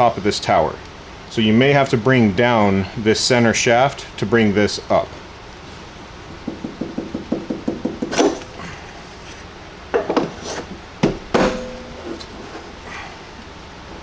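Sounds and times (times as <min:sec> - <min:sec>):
metal knocks and clanks: 0:11.0 - 0:12.5.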